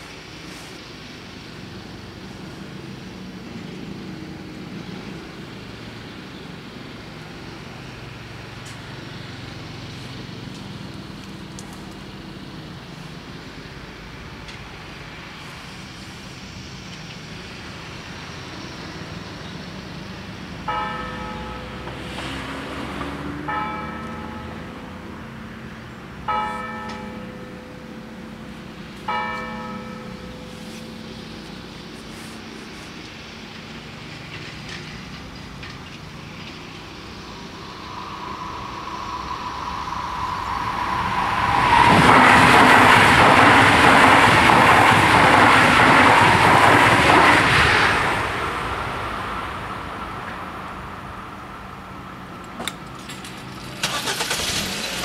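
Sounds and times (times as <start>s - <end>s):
bell ringing: 26.3s - 28.2s, 29.1s - 31.0s
low rumble: 36.6s - 44.2s.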